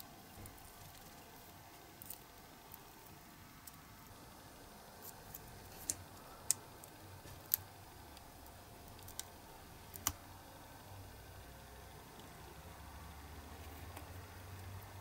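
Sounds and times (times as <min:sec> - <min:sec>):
silicone mould clicking and snapping: 0:08.2 - 0:10.2.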